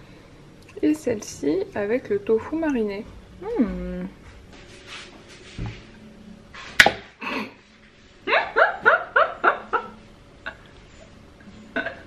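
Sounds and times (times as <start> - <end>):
woman laughing: 8.2 - 10.7.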